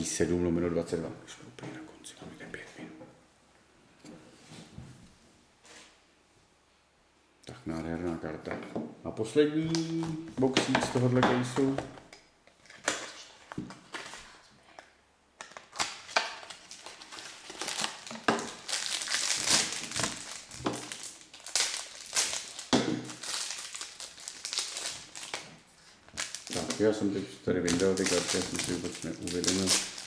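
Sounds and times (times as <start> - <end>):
plastic shrink-wrap crinkling: 15.4 - 30.0.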